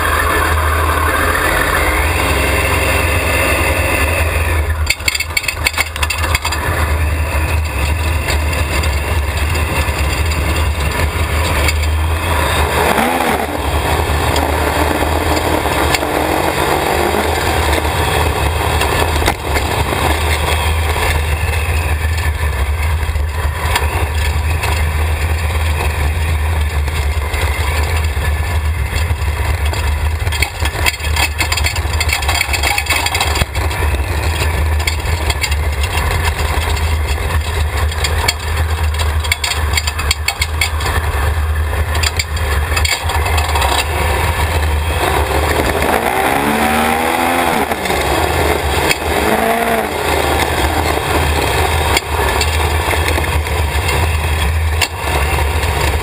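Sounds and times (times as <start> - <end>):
go-kart engine revving: 0.0 - 56.0
heavy low rumble: 0.0 - 56.0.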